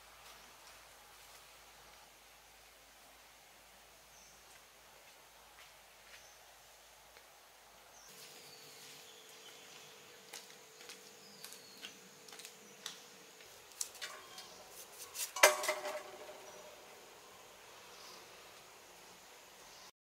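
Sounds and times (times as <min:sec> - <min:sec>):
metal bowl clattering on concrete: 0:14.0 - 0:14.6, 0:15.2 - 0:16.8.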